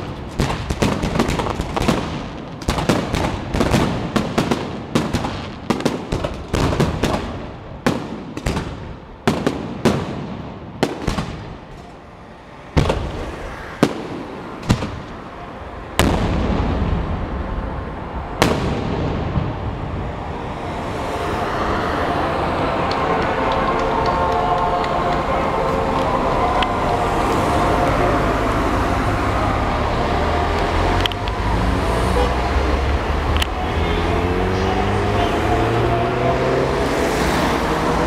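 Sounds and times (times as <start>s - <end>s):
steady rumble: 15.8s - 34.1s.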